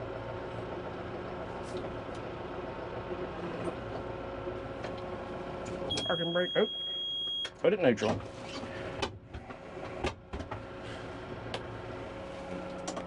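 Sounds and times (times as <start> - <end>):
tractor diesel engine running: 0.0 - 6.4.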